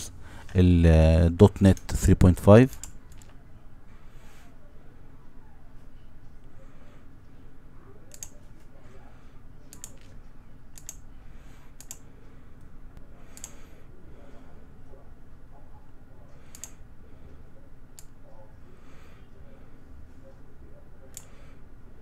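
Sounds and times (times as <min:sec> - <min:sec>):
low background hum: 0:00.0 - 0:22.0
computer mouse clicks: 0:08.1 - 0:08.4, 0:09.7 - 0:11.0, 0:11.8 - 0:12.0, 0:13.3 - 0:13.6, 0:16.5 - 0:16.8, 0:21.1 - 0:21.3.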